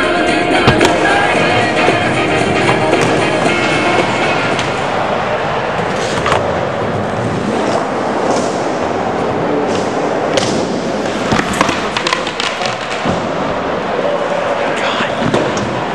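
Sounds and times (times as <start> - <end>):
skateboard rolling: 0.0 - 15.9
skateboard clacks and slaps: 5.8 - 13.5, 15.0 - 15.9.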